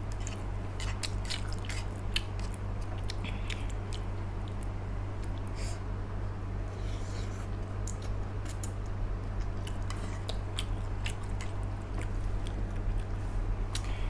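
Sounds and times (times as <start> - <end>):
steady low hum: 0.0 - 14.0
person chewing noodles: 0.1 - 5.5, 7.5 - 14.0.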